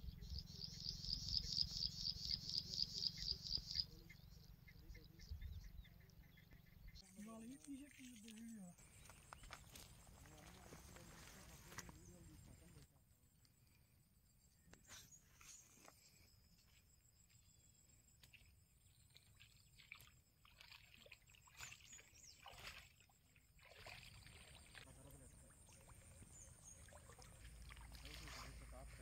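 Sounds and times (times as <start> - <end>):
footsteps on stony grass: 8.8 - 12.0
water sloshing: 19.0 - 29.0.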